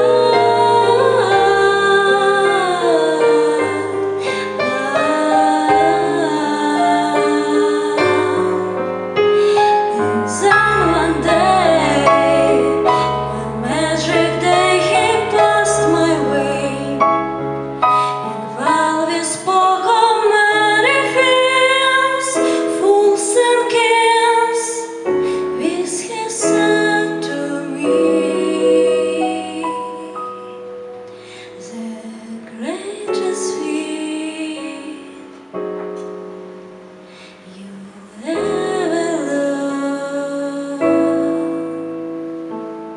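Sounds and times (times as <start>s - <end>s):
woman singing into microphone: 0.0s - 8.8s, 9.4s - 17.1s, 17.9s - 30.5s, 31.3s - 35.5s, 37.2s - 41.9s
sustained accompaniment chords: 0.0s - 19.9s
low bass line: 10.0s - 18.7s.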